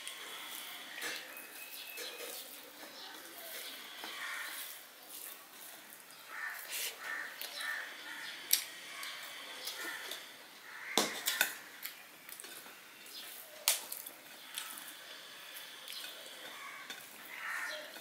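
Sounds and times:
chewing: 0:11.2 - 0:18.0.

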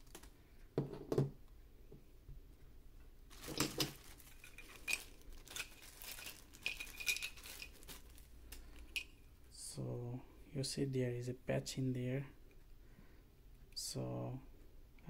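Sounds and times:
plastic bags crinkling: 0:00.0 - 0:00.3, 0:03.3 - 0:09.1.

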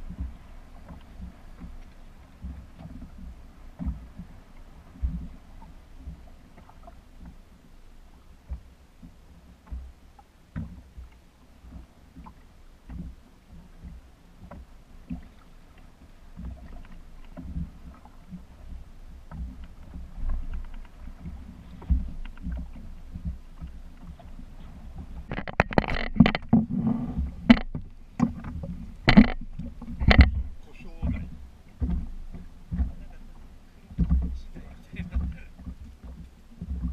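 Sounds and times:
water lapping against boat hull: 0:00.0 - 0:36.9
light knocks on boat: 0:18.7 - 0:33.2, 0:33.9 - 0:36.9.

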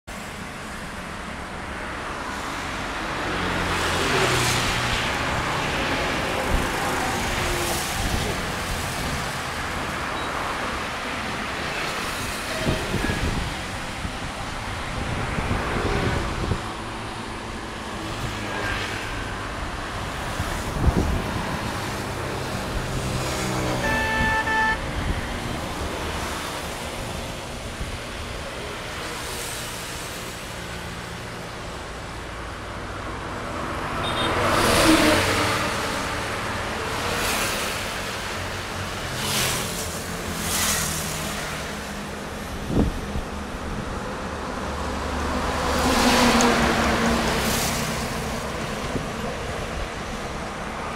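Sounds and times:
vehicles passing: 0:00.1 - 0:50.9
vehicle horn: 0:23.7 - 0:25.2, 0:34.0 - 0:34.5.

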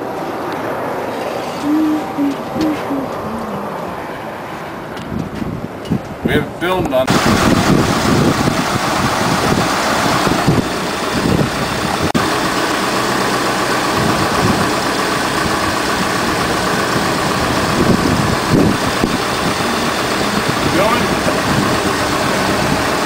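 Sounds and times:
truck engine idling: 0:07.1 - 0:23.0.

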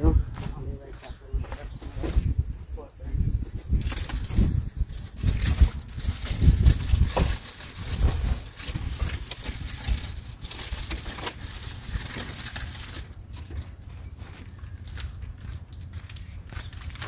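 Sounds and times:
gusty low rumble: 0:00.0 - 0:14.2
packaged food rustling: 0:03.6 - 0:17.0.

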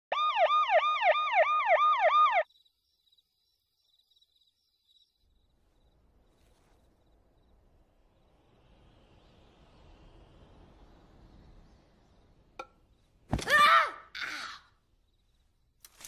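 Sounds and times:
ambulance siren yelping: 0:00.1 - 0:02.5.

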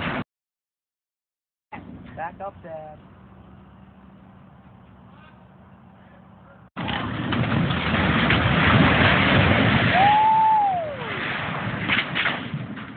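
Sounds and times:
masonry crashing and rumbling: 0:06.8 - 0:12.9.

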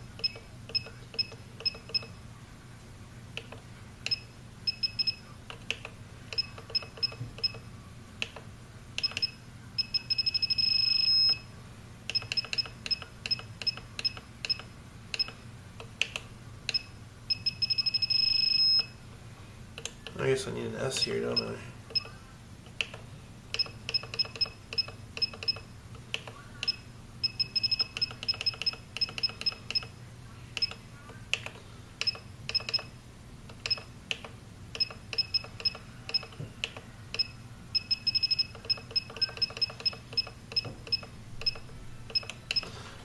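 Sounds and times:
short high beeps: 0:09.1 - 0:11.4, 0:17.3 - 0:18.9.

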